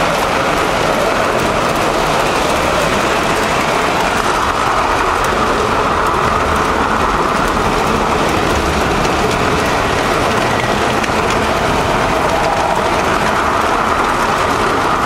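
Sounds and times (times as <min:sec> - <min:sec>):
model train rolling and motor whir: 0:00.0 - 0:15.0
wheels clicking on rails: 0:00.0 - 0:15.0.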